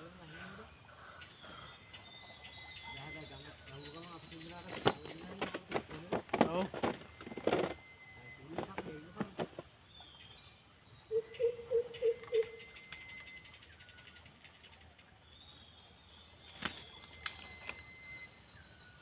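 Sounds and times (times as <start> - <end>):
bird hooting: 11.1 - 14.1
high chirps and whistles: 15.6 - 19.0.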